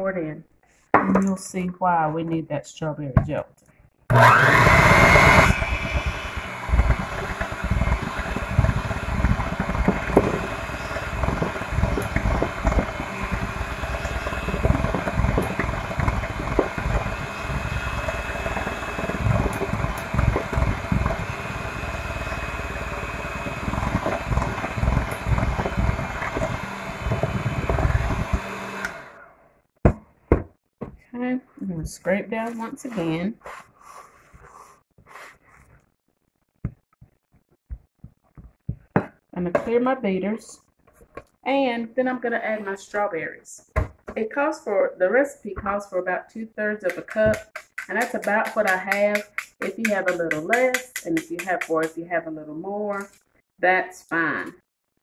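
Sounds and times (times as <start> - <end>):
electric hand mixer running: 4.1 - 29.2, 46.9 - 51.9.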